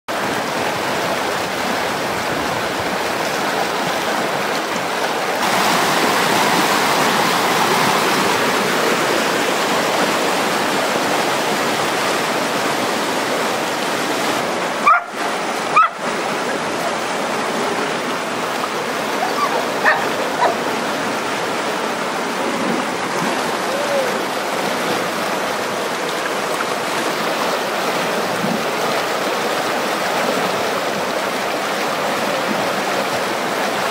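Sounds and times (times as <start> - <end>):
creek rapids rushing: 0.1 - 33.9
dog barking: 14.8 - 16.0, 19.2 - 20.6.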